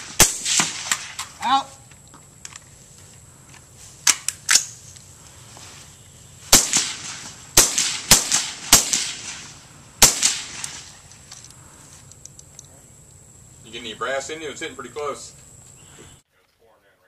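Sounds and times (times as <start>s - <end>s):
suppressed gunshots: 0.0s - 1.4s, 6.5s - 11.1s
sharp thin cracks: 0.0s - 2.7s, 4.0s - 5.1s, 6.5s - 12.7s.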